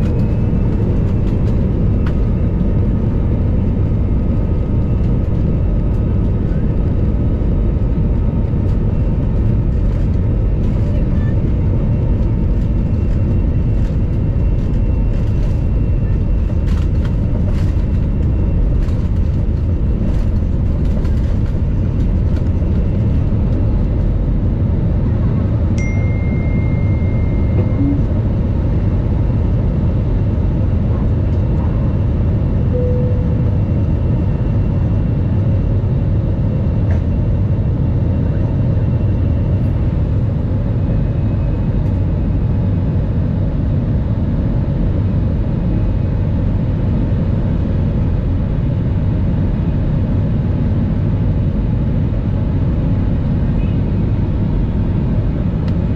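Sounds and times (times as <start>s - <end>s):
jet engine rumble in cabin: 0.0s - 55.9s
faint beep: 25.8s - 28.2s, 32.7s - 33.6s.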